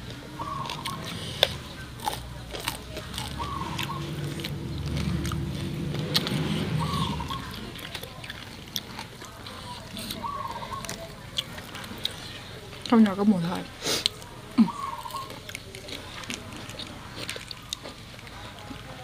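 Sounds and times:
chewing and crunching: 0.0 - 19.0
low rumble: 3.1 - 9.2.

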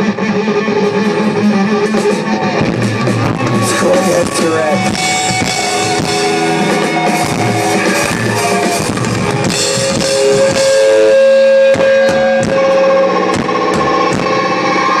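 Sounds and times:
rock band playing loud: 0.0 - 15.0.

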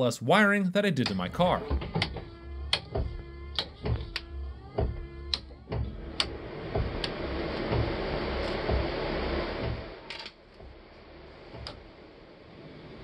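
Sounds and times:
electrical hum: 0.0 - 13.0
toggle switches clicking: 2.7 - 4.3, 5.3 - 5.5
steady rushing noise: 6.0 - 13.0.

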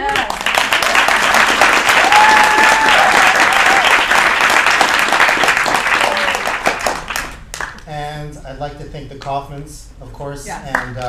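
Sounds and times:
audience applauding: 0.0 - 7.8
person whooping: 2.0 - 4.0, 6.0 - 6.5.

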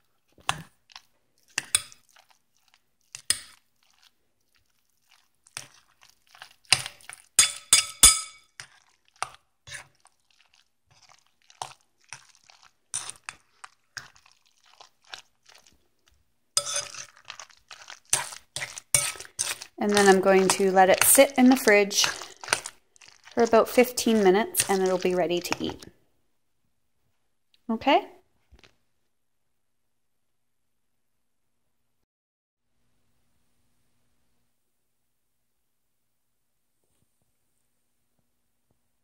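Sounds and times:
wet squishing: 0.0 - 7.4, 8.5 - 26.0
spoon scraping glass bowl: 1.5 - 15.7, 16.6 - 25.9.

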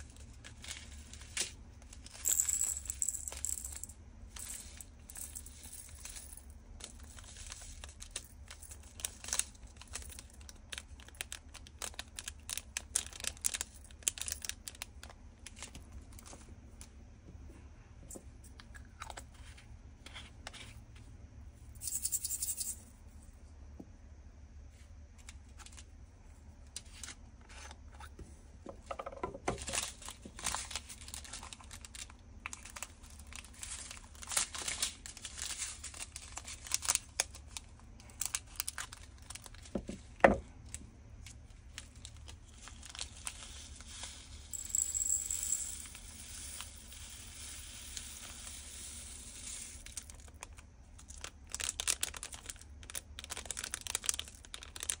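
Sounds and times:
plastic packets crinkling: 4.4 - 16.8, 29.5 - 44.9, 49.8 - 55.0
tiny beads pouring into bottle: 42.5 - 55.0.

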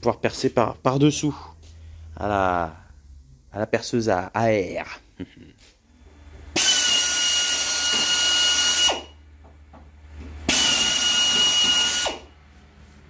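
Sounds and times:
compressed-air drill whining: 6.1 - 9.2, 10.4 - 12.4.

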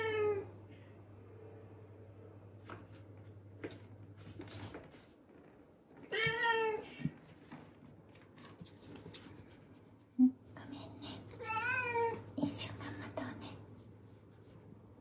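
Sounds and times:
cat meowing: 6.1 - 7.0, 11.4 - 12.2.

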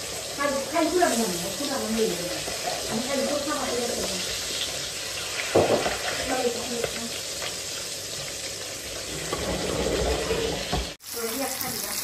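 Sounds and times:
fish sizzling in hot oil: 0.0 - 12.0
metal spatula scraping a pan: 2.2 - 6.5, 9.0 - 10.9.

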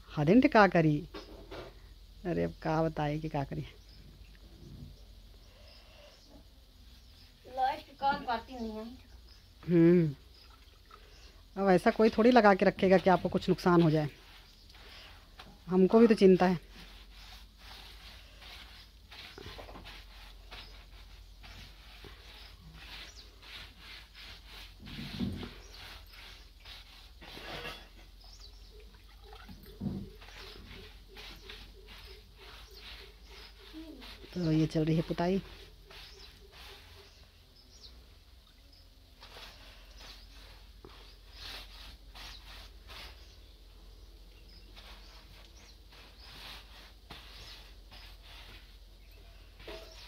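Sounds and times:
wet rag rubbing on wall: 11.7 - 28.5, 29.3 - 37.9, 39.2 - 43.5, 44.5 - 50.0.

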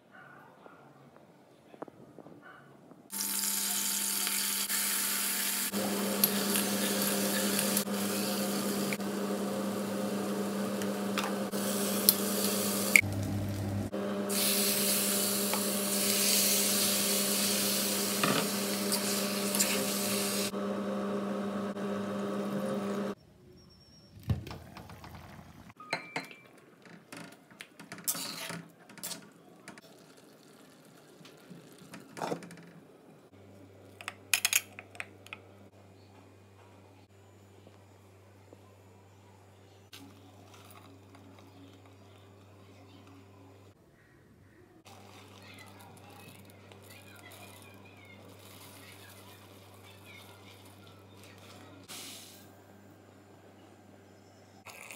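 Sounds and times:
small motor humming: 3.2 - 23.2.

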